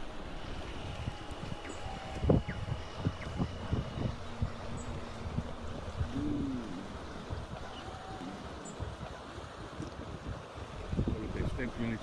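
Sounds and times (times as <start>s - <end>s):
faint low drone: 0.0s - 8.9s
water churning: 0.0s - 12.0s.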